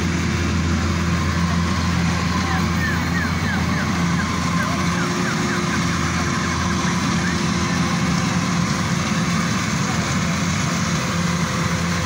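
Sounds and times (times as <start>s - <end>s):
combine harvester engine drone: 0.0s - 12.0s.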